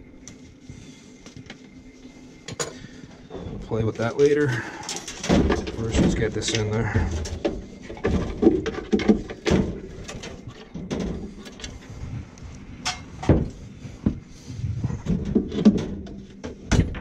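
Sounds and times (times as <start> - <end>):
metallic knocks and scrapes: 12.8 - 13.6.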